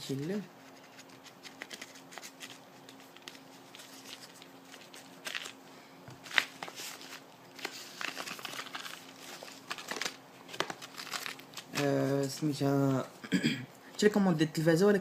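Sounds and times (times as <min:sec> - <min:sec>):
paper packaging rustling: 0:00.6 - 0:12.4.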